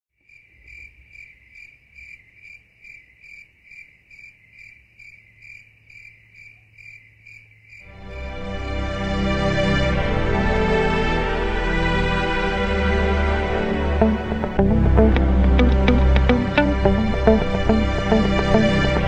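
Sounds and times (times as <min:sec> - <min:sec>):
cricket chirping: 0:00.2 - 0:07.9
music: 0:07.9 - 0:19.0.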